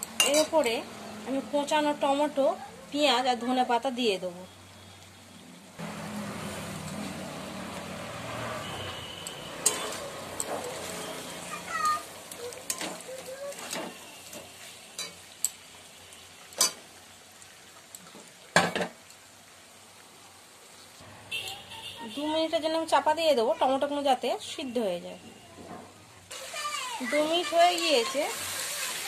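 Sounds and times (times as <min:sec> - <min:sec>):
chicken sizzling in a pan: 0:05.8 - 0:21.0, 0:26.3 - 0:29.0
metal spatula scraping a pan: 0:09.5 - 0:11.3.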